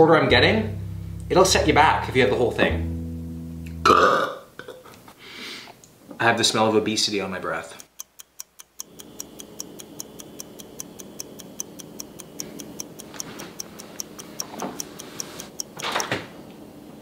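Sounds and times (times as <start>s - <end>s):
clock ticking fast: 7.6s - 16.1s.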